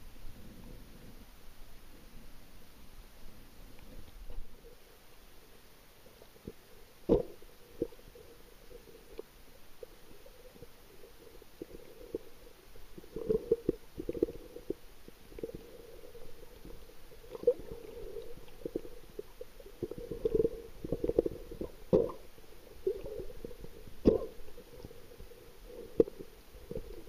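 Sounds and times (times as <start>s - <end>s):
underwater knocks and clicks: 16.7s - 22.3s, 24.0s - 25.0s.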